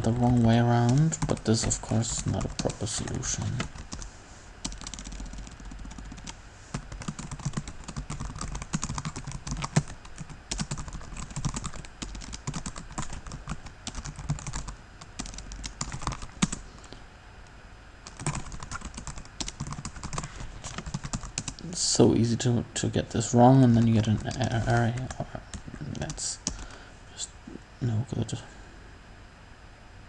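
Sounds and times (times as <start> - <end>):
typing on computer keyboard: 0.0 - 16.6, 18.0 - 21.6.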